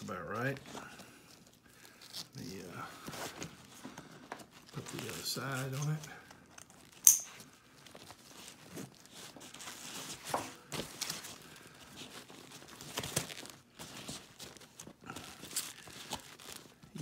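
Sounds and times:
nylon fabric rustling: 7.5s - 17.0s.

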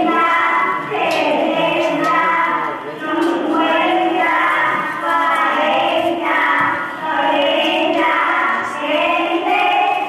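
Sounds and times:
children chanting over loudspeakers: 0.0s - 10.0s.

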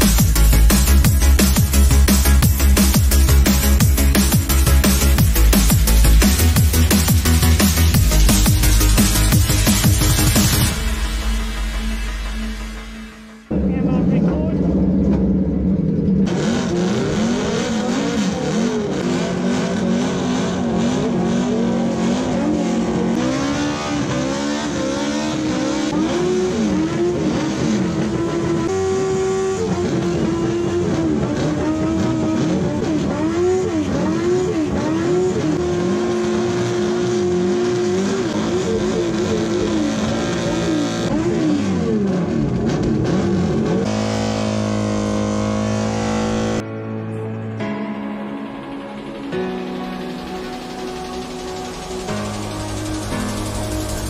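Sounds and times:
motorcycle engines revving: 13.5s - 46.6s, 49.9s - 54.0s.

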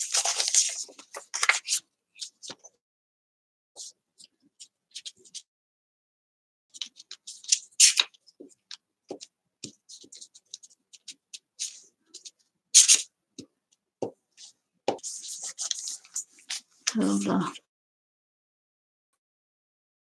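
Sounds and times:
paper rubbing: 0.0s - 2.6s, 9.6s - 13.1s, 14.4s - 16.7s
paper rustling: 0.0s - 2.8s, 6.8s - 13.1s, 14.4s - 17.0s.

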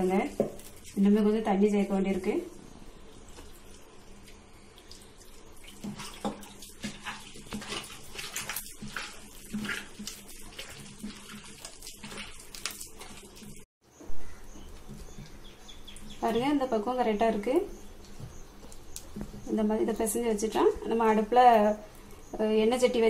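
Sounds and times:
hand mixing wet batter: 0.0s - 13.7s.

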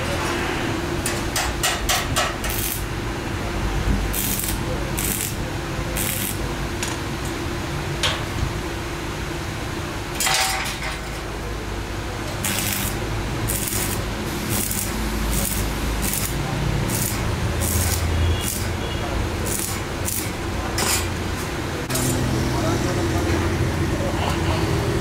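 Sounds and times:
low workshop hum: 0.0s - 25.0s
welding arc crackling and hissing: 2.2s - 3.0s, 4.0s - 6.9s, 12.4s - 20.6s.

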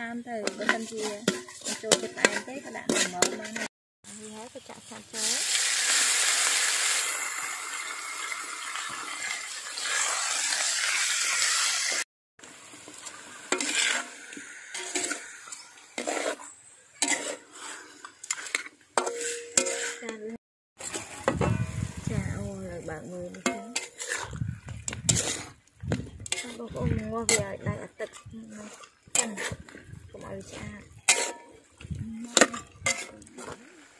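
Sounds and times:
metal spatula scraping a wok: 0.0s - 3.7s, 12.8s - 33.9s
chicken sizzling in hot oil: 0.0s - 20.0s, 20.8s - 33.9s.

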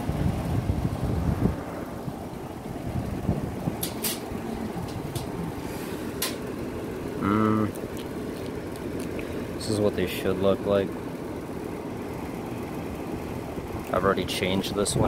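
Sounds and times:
wind rumble on microphone: 0.0s - 5.7s
metal coupler clicks: 3.8s - 5.4s.

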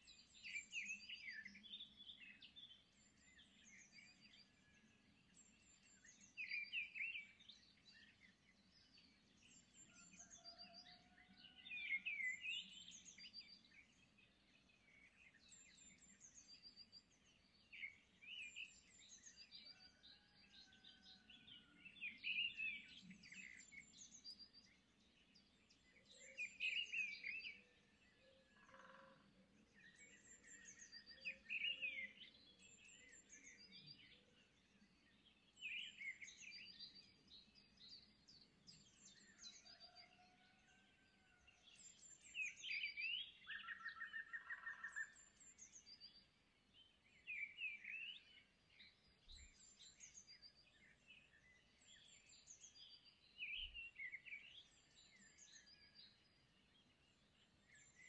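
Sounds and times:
faint whistled bird notes: 8.9s - 14.0s, 29.9s - 34.2s, 57.1s - 58.0s
small birds chirping: 11.5s - 40.2s, 41.7s - 58.0s.

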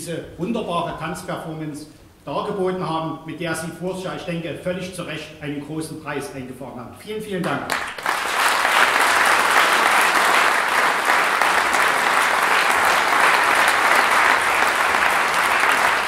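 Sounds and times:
audience applauding: 7.7s - 16.0s.

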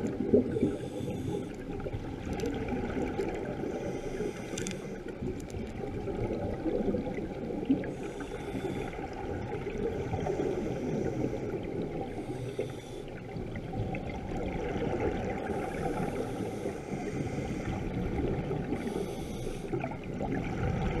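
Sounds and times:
low underwater wash: 0.0s - 21.0s
regulator breathing underwater: 0.5s - 1.9s, 3.5s - 5.1s, 7.8s - 9.3s, 9.9s - 13.4s, 15.4s - 20.0s.

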